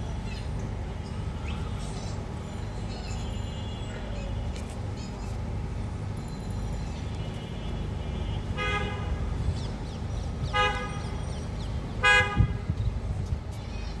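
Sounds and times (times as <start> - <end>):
low street rumble: 0.0 - 14.0
vehicle horn beeps: 3.3 - 4.6.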